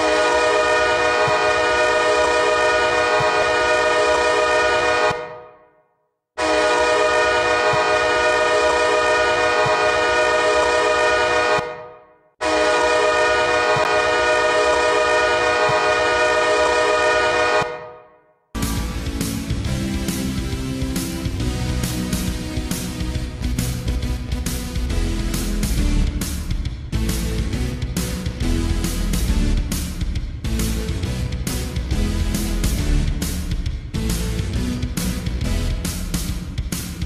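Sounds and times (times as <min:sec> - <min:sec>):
hockey goal horn blasts: 0:00.0 - 0:05.6, 0:06.4 - 0:18.2.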